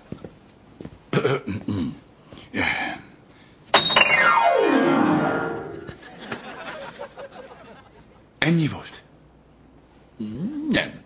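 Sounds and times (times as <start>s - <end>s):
piano glissando: 3.8s - 6.0s.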